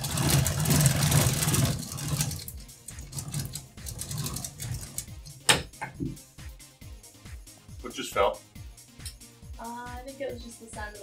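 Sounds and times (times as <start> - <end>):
roller chain clicking and rattling: 0.0 - 5.4.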